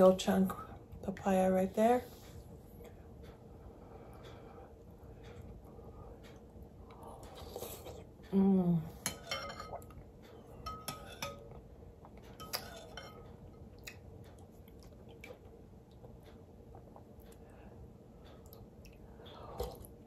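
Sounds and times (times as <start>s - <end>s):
person humming: 8.3s - 9.0s
spoon clinking on glass bowl: 9.1s - 9.8s.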